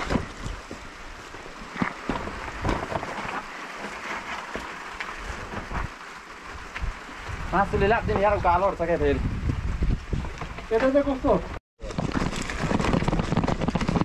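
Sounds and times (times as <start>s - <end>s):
knocks and rustles: 0.0s - 6.0s, 10.1s - 11.0s, 11.8s - 14.0s.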